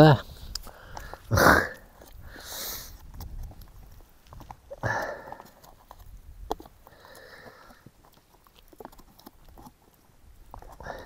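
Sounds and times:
small scattered clicks: 2.9 - 11.0.

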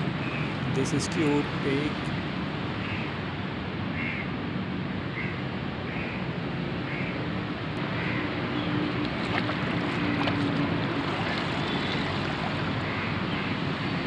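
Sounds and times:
river water rushing: 8.8 - 13.0
water pouring through mesh basket: 9.0 - 12.8.

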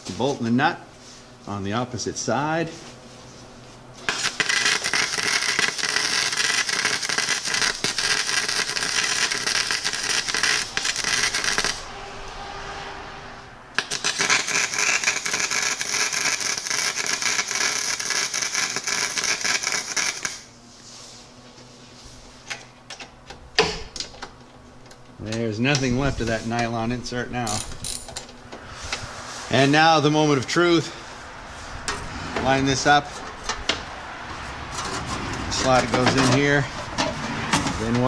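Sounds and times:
wire welder crackling: 4.0 - 11.9, 13.7 - 20.6.

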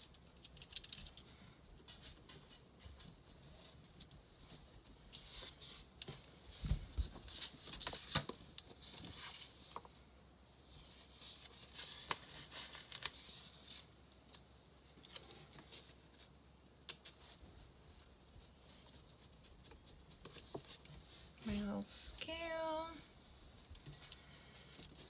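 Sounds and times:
paper rustling and crinkling: 5.1 - 9.9, 10.8 - 13.9.

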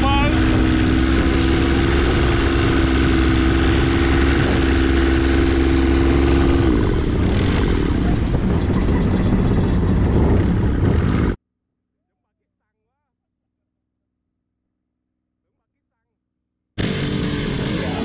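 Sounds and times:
speedboat engine running: 0.0 - 11.4, 16.8 - 18.0.

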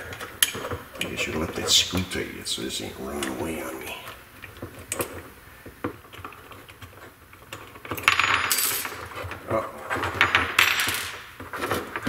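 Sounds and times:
small metal parts clinking and rattling: 6.0 - 12.0.

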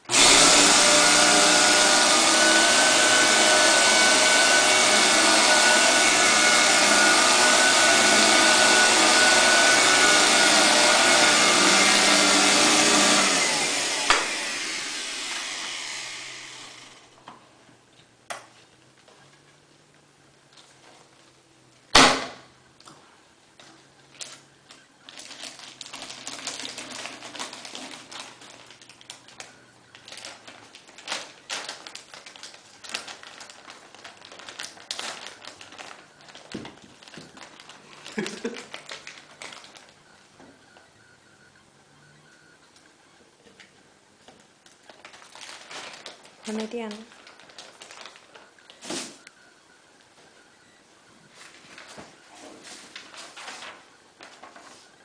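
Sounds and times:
vacuum cleaner running: 0.0 - 17.2
vacuum motor winding down: 0.1 - 17.2
plastic bag crinkling: 24.0 - 40.0, 44.6 - 49.3, 51.3 - 54.8.

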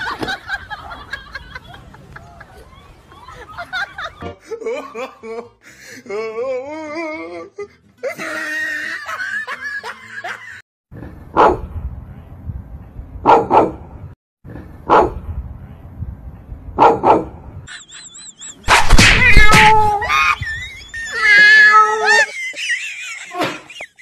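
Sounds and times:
dog barking: 11.4 - 11.7, 13.2 - 13.8, 14.9 - 15.2, 16.8 - 17.4
loud scream: 18.7 - 22.3.

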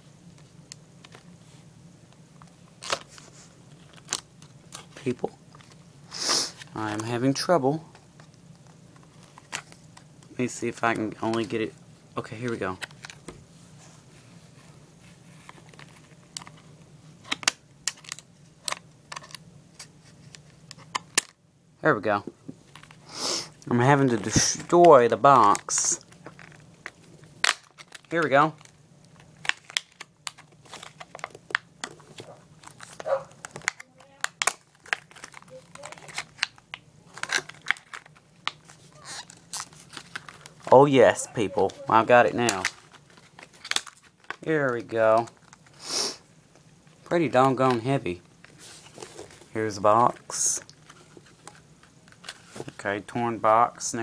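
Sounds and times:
plastic crackling: 23.6 - 45.8.

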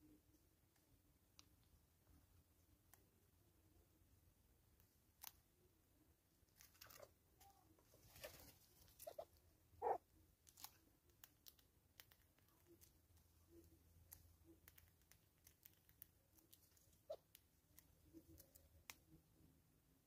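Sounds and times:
faint clicks and taps: 10.3 - 19.4.

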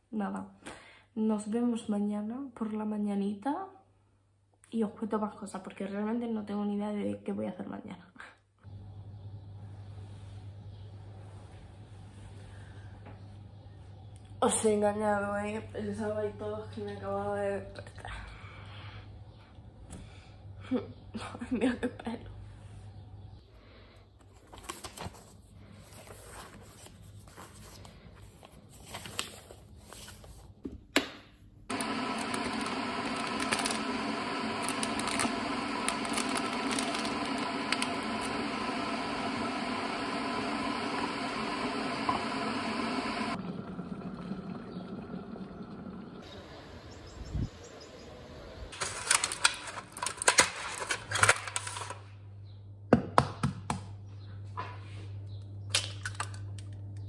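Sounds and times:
kitchen appliance humming: 8.6 - 21.7, 31.7 - 52.0.

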